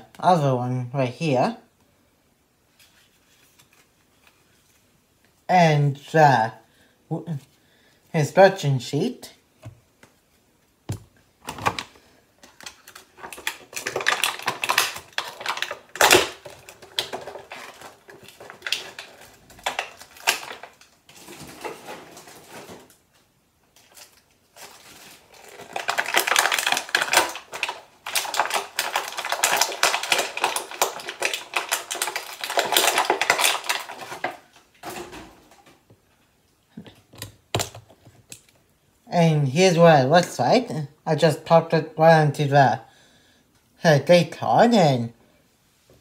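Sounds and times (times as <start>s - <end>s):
packaging crinkling: 11.5s - 35.0s
hard plastic toy clattering: 12.5s - 21.9s, 25.4s - 35.1s.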